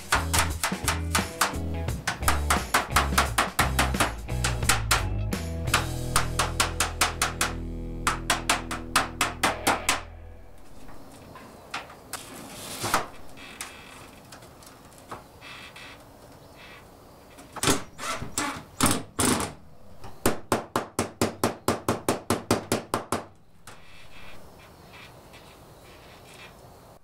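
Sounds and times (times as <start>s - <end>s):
tapping on steel roofing sheet: 0.0s - 10.1s.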